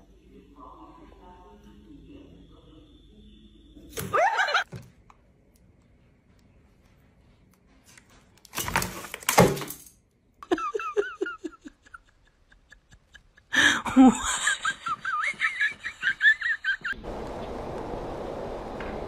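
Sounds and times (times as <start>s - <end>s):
person laughing: 4.0s - 4.7s, 10.4s - 17.0s
loud burst of noise: 17.0s - 19.0s.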